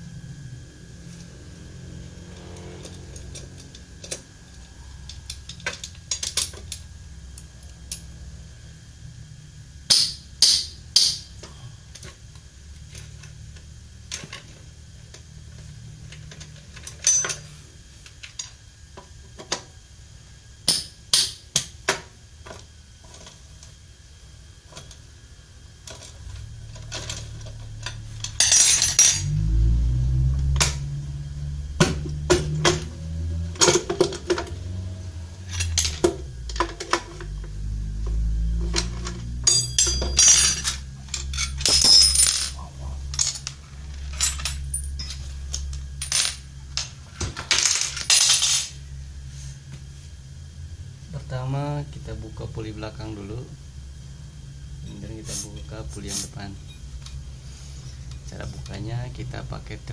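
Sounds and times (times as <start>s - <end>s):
metal tools clinking: 16.2s - 17.5s, 25.9s - 29.4s, 35.4s - 37.3s, 38.6s - 48.8s
low rumble: 26.3s - 33.6s.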